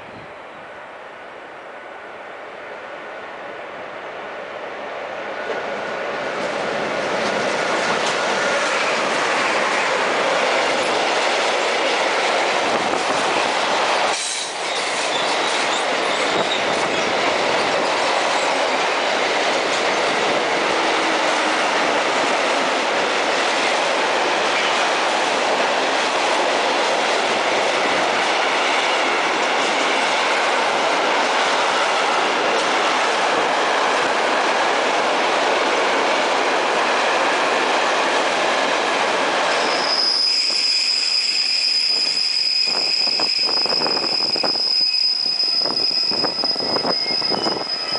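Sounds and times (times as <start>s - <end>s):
freight train rolling past: 0.0s - 47.9s.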